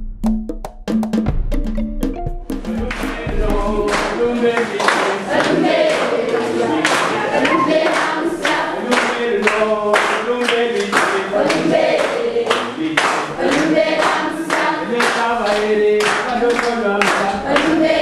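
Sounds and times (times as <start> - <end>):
children clapping in time: 2.8 - 18.0
children singing in chorus: 3.8 - 9.4, 11.1 - 15.3, 17.4 - 18.0.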